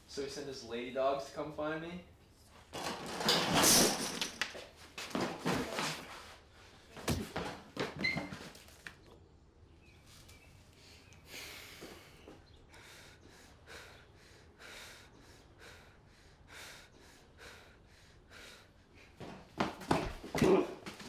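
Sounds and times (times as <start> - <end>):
thumps and scuffling of fight: 2.8 - 8.8, 19.2 - 21.0
heavy breathing: 10.7 - 19.2.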